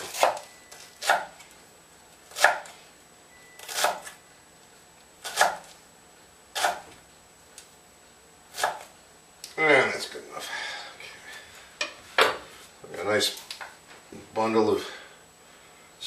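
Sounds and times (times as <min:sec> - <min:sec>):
knife cutting on wooden board: 0:02.3 - 0:02.7, 0:05.2 - 0:05.7, 0:06.6 - 0:06.9.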